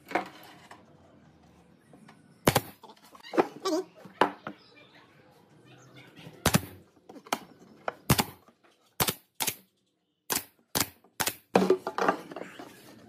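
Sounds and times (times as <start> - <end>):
nail gun firing: 2.4 - 2.8, 8.1 - 8.4, 9.0 - 9.6, 10.3 - 11.5.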